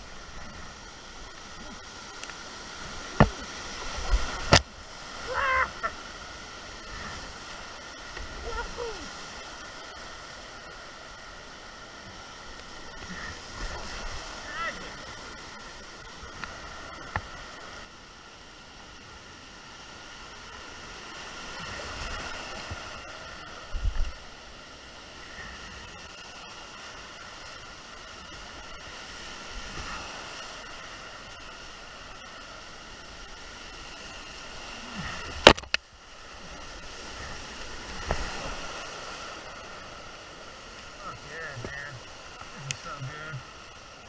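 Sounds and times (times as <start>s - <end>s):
whitewater rushing: 0.0s - 18.7s, 20.4s - 44.0s.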